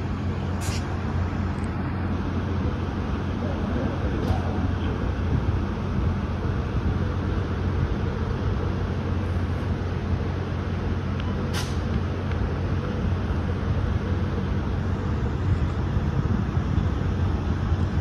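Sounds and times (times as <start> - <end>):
diesel locomotive rumble: 0.0 - 18.0
train cars rolling on rails: 0.0 - 18.0
sharp air hiss: 0.5 - 1.0, 11.5 - 11.9.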